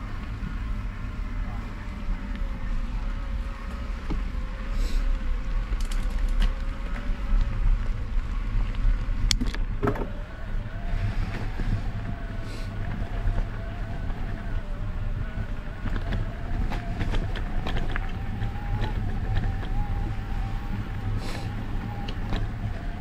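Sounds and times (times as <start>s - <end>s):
bike tyres crunching on gravel: 0.0s - 23.0s
faint steady whine: 0.0s - 23.0s.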